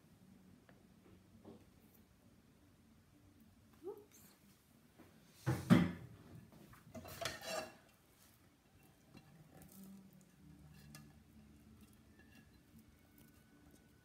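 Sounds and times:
saucepan and utensils clattering: 0:06.6 - 0:08.0, 0:08.6 - 0:14.0
spatula scraping pan: 0:06.8 - 0:14.0.

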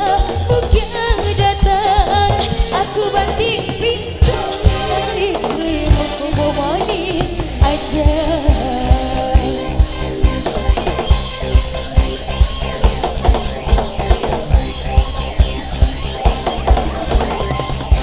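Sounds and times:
woman singing: 0:00.0 - 0:10.0
live band music: 0:00.0 - 0:18.0
steady drum beat: 0:00.0 - 0:18.0.

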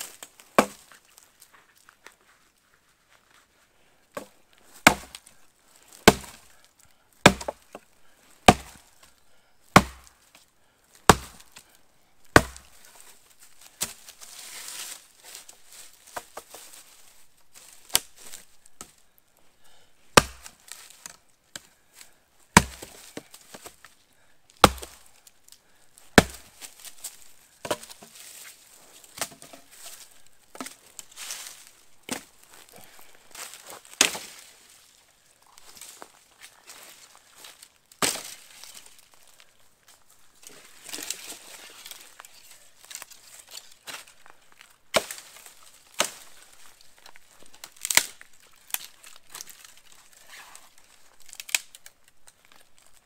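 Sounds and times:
wood splitting: 0:00.0 - 0:01.0, 0:04.1 - 0:05.4, 0:06.0 - 0:06.6, 0:07.2 - 0:08.9, 0:09.7 - 0:10.2, 0:11.0 - 0:11.7, 0:12.3 - 0:13.0, 0:13.7 - 0:14.2, 0:20.1 - 0:21.8, 0:22.5 - 0:23.8, 0:24.6 - 0:25.2, 0:26.1 - 0:27.0, 0:27.6 - 0:28.4, 0:29.0 - 0:34.5, 0:37.9 - 0:39.0, 0:44.9 - 0:46.5, 0:47.6 - 0:50.6, 0:51.3 - 0:51.9
axe chopping firewood: 0:00.1 - 0:00.9, 0:04.1 - 0:05.3, 0:06.0 - 0:06.5, 0:07.2 - 0:08.8, 0:09.7 - 0:10.2, 0:11.0 - 0:11.6, 0:12.3 - 0:12.8, 0:13.7 - 0:14.1, 0:20.1 - 0:21.7, 0:22.5 - 0:23.8, 0:24.6 - 0:25.1, 0:26.1 - 0:26.8, 0:27.6 - 0:28.2, 0:29.1 - 0:29.8, 0:32.0 - 0:32.3, 0:33.4 - 0:34.5, 0:38.0 - 0:38.5, 0:44.9 - 0:46.3.

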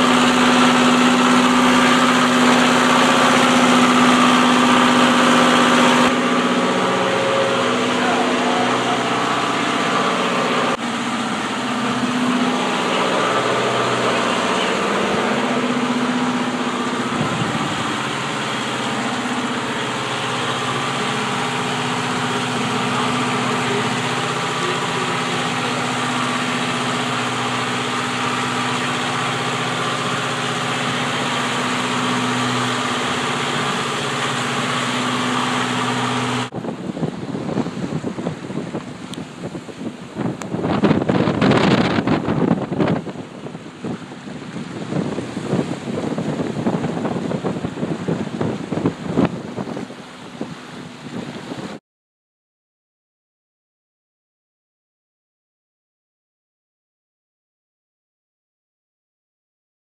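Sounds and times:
boat engine humming: 0:00.0 - 0:51.8
waves washing: 0:00.0 - 0:51.8
wind on microphone: 0:11.5 - 0:21.1, 0:36.5 - 0:51.8.

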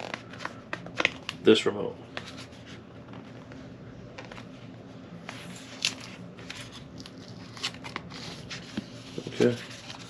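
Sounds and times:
packaging rustling: 0:05.4 - 0:10.0.

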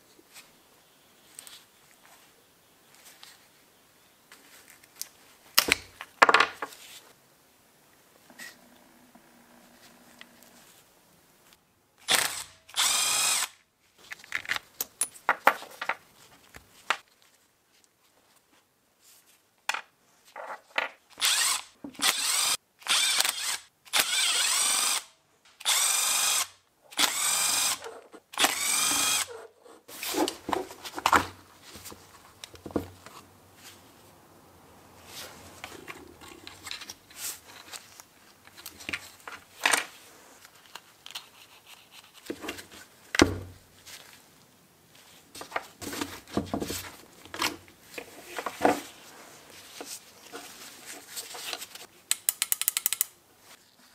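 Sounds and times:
electric screwdriver whine: 0:12.1 - 0:13.5, 0:21.2 - 0:27.8, 0:28.4 - 0:29.3
small parts clicking on bench: 0:52.1 - 0:53.2.

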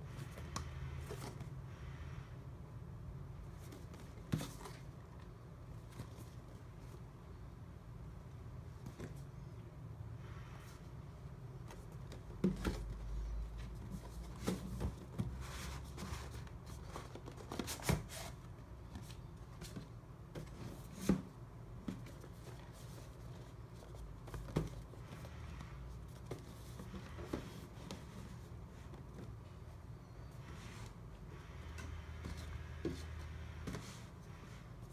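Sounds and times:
cardboard boxes sliding and rustling: 0:03.4 - 0:05.0, 0:11.7 - 0:29.5, 0:30.2 - 0:34.9.

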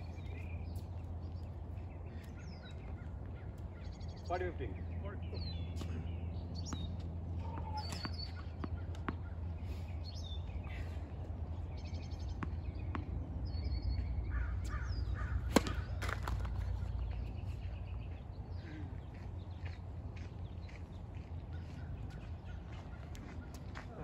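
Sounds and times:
birds chirping and calling: 0:00.0 - 0:24.0
tennis ball strike: 0:15.4 - 0:16.7.

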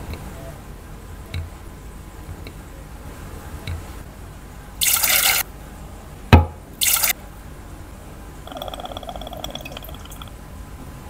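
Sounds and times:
sharp knock: 0:06.3 - 0:06.6.

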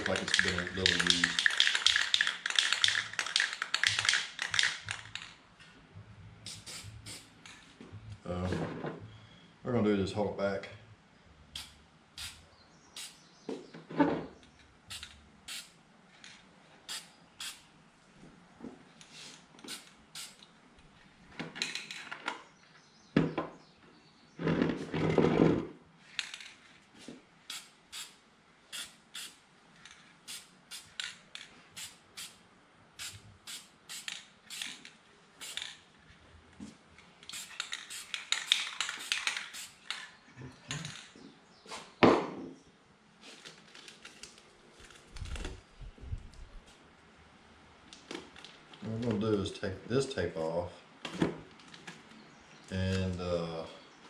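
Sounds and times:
spray paint can bursts: 0:00.0 - 0:05.3, 0:06.4 - 0:07.4, 0:11.6 - 0:12.4, 0:13.0 - 0:13.2, 0:14.9 - 0:15.8, 0:16.9 - 0:17.7, 0:19.6 - 0:20.4, 0:27.5 - 0:29.4, 0:30.2 - 0:31.2, 0:31.8 - 0:32.4, 0:33.0 - 0:35.8, 0:37.2 - 0:40.0.

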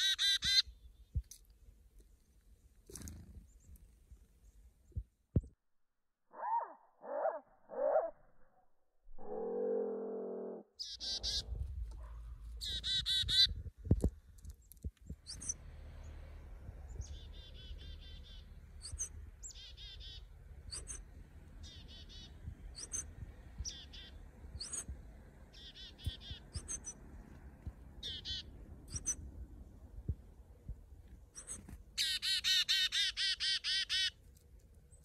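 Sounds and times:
chickadee calling: 0:00.0 - 0:00.8, 0:10.8 - 0:11.5, 0:12.6 - 0:13.5, 0:17.0 - 0:24.9, 0:25.5 - 0:27.0, 0:28.0 - 0:29.2, 0:31.4 - 0:34.2.

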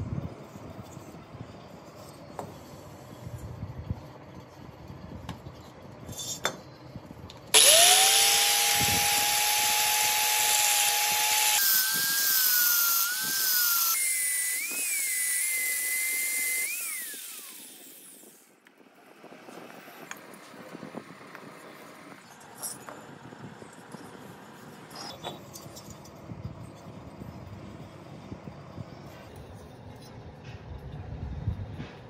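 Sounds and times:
power tool whine: 0:07.5 - 0:18.7.

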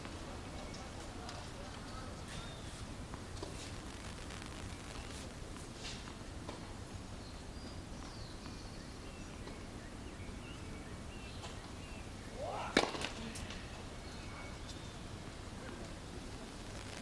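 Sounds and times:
faint bird chirps: 0:02.3 - 0:02.8, 0:13.3 - 0:15.1
tennis racket striking ball: 0:12.8 - 0:13.1.

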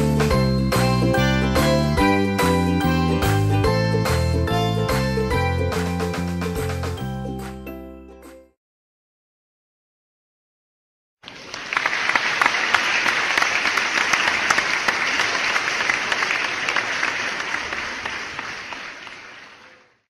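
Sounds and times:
audience applauding: 0:11.2 - 0:20.0.

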